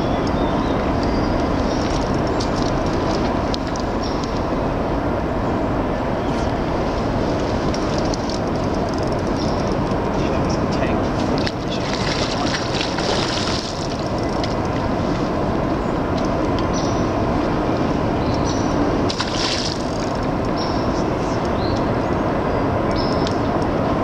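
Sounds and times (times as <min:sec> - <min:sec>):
creek water rushing: 0:00.0 - 0:24.0
fish splashing at the surface: 0:11.7 - 0:14.3, 0:19.1 - 0:20.2.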